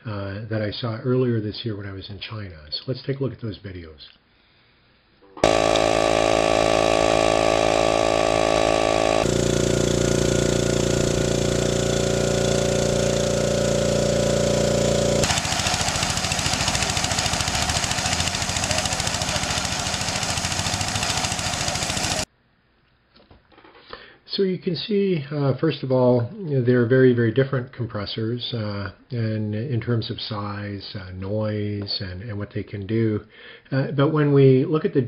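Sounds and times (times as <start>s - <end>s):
air compressor pump humming: 5.4s - 22.3s
engine-driven compressor running: 5.4s - 22.3s
jackhammer hammering rapidly: 5.4s - 22.3s.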